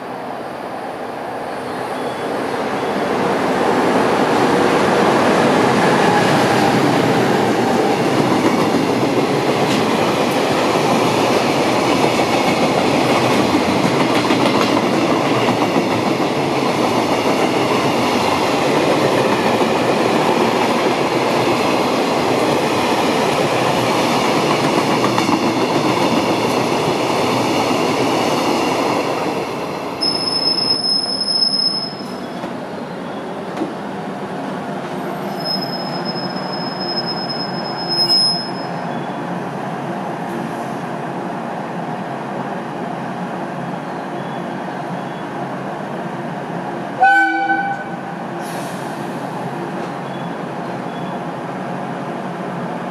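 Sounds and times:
train wheels rumbling on rails: 0:03.2 - 0:41.2.

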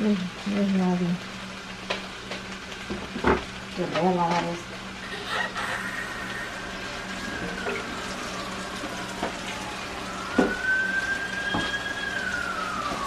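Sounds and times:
running tap water: 0:00.0 - 0:13.0
siren wailing: 0:05.0 - 0:13.0.

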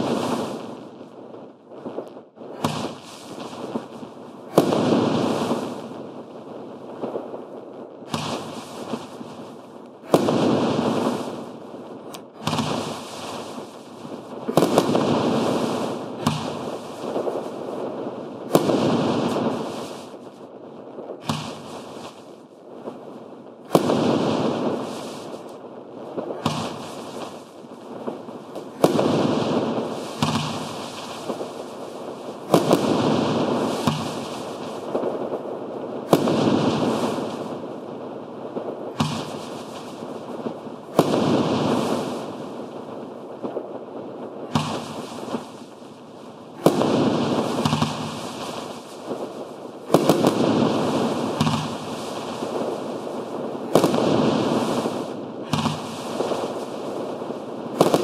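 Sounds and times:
firework crackling: 0:00.0 - 0:58.0
firework shot bangs: 0:02.6 - 0:03.8, 0:04.5 - 0:05.8, 0:08.1 - 0:09.2, 0:10.0 - 0:11.4, 0:12.1 - 0:17.4, 0:18.5 - 0:20.2, 0:21.2 - 0:22.2, 0:23.7 - 0:25.3, 0:26.3 - 0:27.5, 0:28.6 - 0:31.7, 0:32.5 - 0:35.0, 0:36.1 - 0:37.6, 0:38.9 - 0:40.0, 0:40.9 - 0:42.4, 0:44.5 - 0:45.7, 0:46.6 - 0:49.1, 0:49.9 - 0:52.6, 0:53.7 - 0:56.6, 0:57.8 - 0:58.0.

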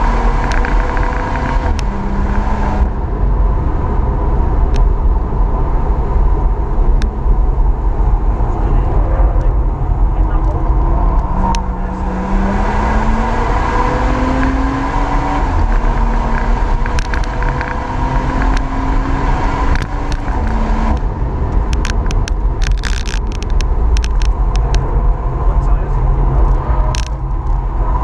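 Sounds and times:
car engine pulling hard: 0:00.0 - 0:28.0
road and wind noise: 0:00.0 - 0:28.0
sharp clicks: 0:19.7 - 0:24.8.

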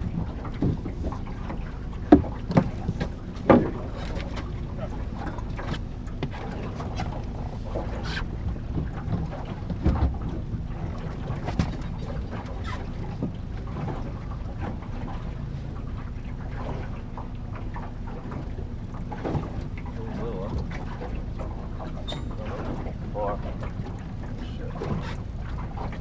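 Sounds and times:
boat motor humming: 0:00.0 - 0:26.0
sharp knocks on boat: 0:00.0 - 0:26.0.

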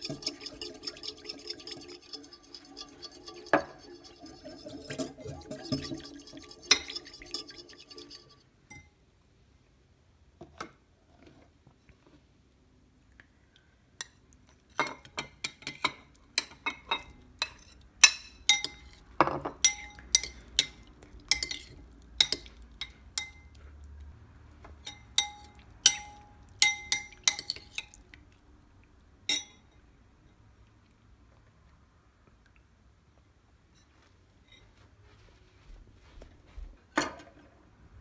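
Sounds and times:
utensil clinking against bowl: 0:00.0 - 0:08.9, 0:14.8 - 0:23.6, 0:24.8 - 0:28.0, 0:29.3 - 0:29.7.

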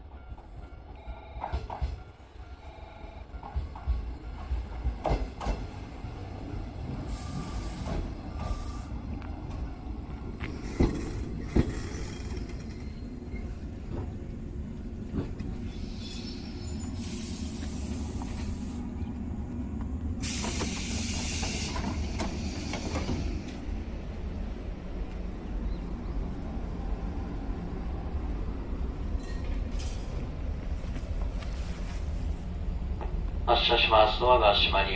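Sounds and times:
electric train humming: 0:00.0 - 0:34.9
compressed air hiss: 0:07.1 - 0:08.9, 0:17.0 - 0:18.9, 0:20.2 - 0:23.4.

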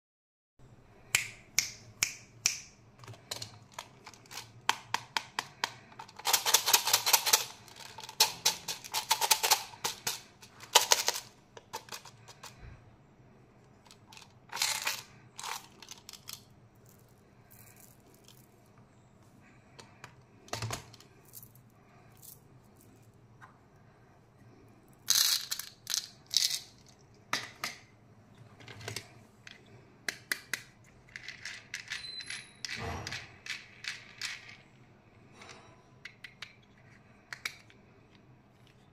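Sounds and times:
plastic toys handled: 0:02.5 - 0:12.8, 0:13.6 - 0:23.6, 0:24.8 - 0:34.9, 0:36.0 - 0:38.9
candies rattling in plastic dispenser: 0:03.0 - 0:12.6, 0:13.8 - 0:17.1, 0:25.1 - 0:27.5, 0:30.1 - 0:32.0, 0:32.7 - 0:34.8.

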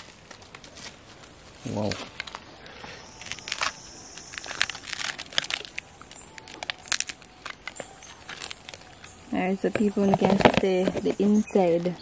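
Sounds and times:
knife scraping charred skin: 0:03.1 - 0:09.2.

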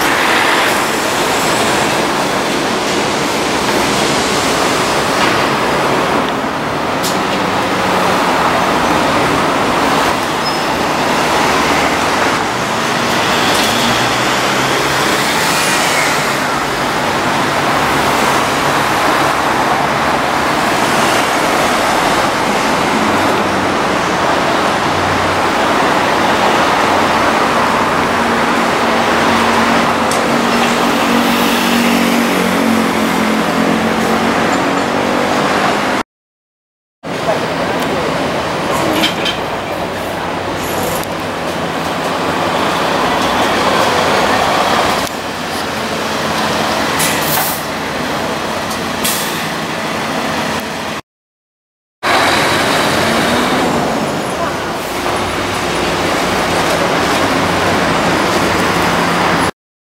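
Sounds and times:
truck engine: 0:00.0 - 0:36.0, 0:52.0 - 0:59.5
city road traffic: 0:00.0 - 0:36.1, 0:37.0 - 0:51.0, 0:52.0 - 0:59.6.

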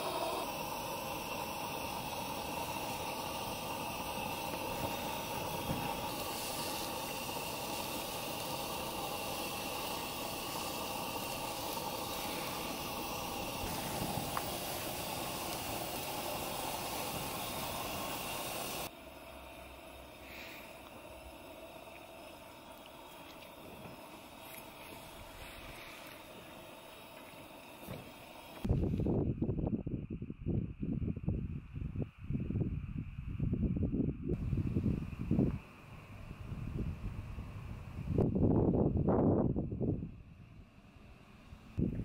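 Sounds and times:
batter sizzling on hot plate: 0:00.0 - 0:28.7
gas burner hissing: 0:00.0 - 0:29.4, 0:34.3 - 0:42.0.

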